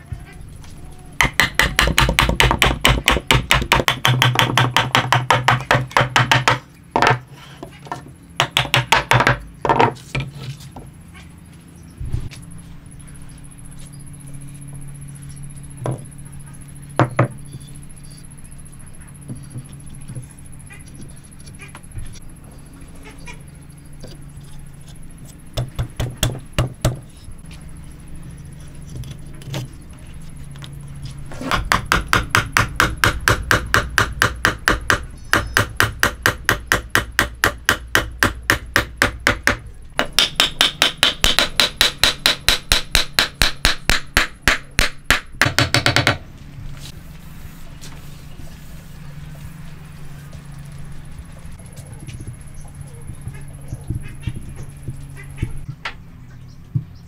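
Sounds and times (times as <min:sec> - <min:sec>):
hammer striking wooden timbers: 0:01.2 - 0:07.2, 0:08.4 - 0:09.9, 0:25.6 - 0:27.0, 0:31.4 - 0:46.2.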